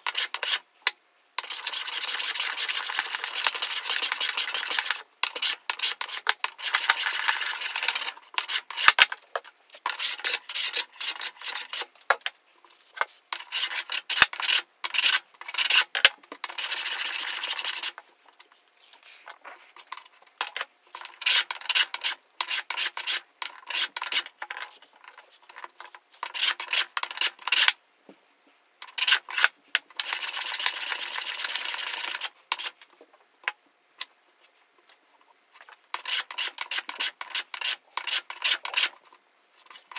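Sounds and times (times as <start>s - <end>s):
hand plane shaving wood: 1.5s - 9.0s, 16.5s - 18.0s, 36.0s - 38.9s.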